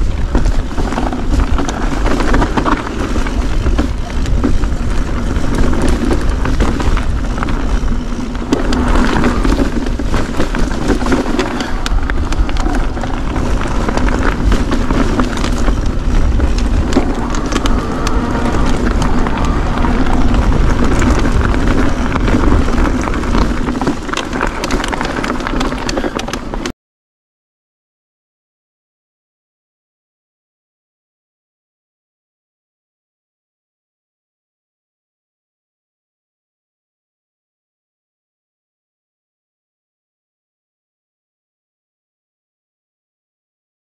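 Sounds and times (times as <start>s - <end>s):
bike knocks and rattles: 0.0s - 26.7s
tyres crunching on loose stone: 0.0s - 26.7s
wind rumbling on microphone: 0.0s - 26.7s.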